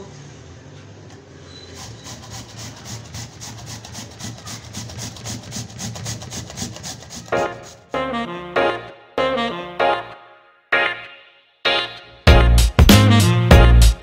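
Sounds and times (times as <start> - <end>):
carrots grated on metal grater: 1.6 - 7.9.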